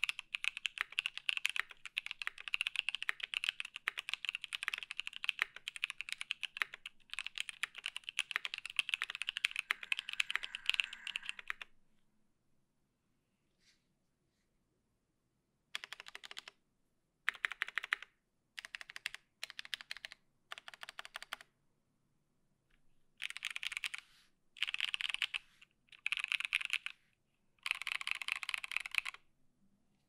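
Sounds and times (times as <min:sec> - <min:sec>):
mechanical keyboard typing: 0:00.0 - 0:11.7, 0:15.8 - 0:16.5, 0:17.3 - 0:21.5, 0:23.2 - 0:24.0, 0:24.6 - 0:26.9, 0:27.6 - 0:29.2.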